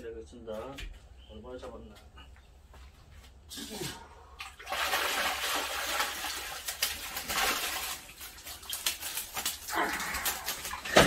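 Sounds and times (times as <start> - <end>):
water splashing and pouring off net: 4.4 - 11.0.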